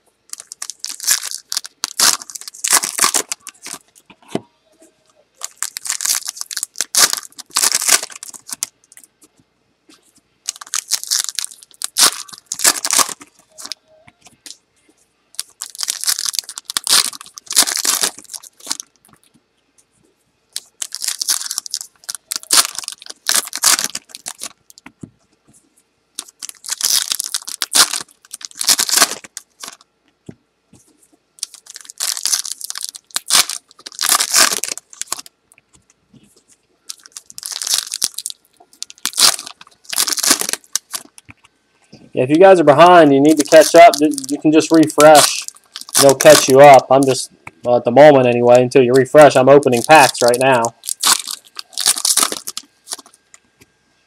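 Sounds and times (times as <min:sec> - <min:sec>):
foil packs tearing: 0:00.3 - 0:03.8, 0:05.4 - 0:08.7, 0:10.5 - 0:13.8, 0:15.4 - 0:18.9, 0:20.6 - 0:24.5, 0:26.2 - 0:29.8, 0:31.4 - 0:35.3, 0:36.9 - 0:41.1, 0:42.5 - 0:46.9, 0:49.0 - 0:53.1.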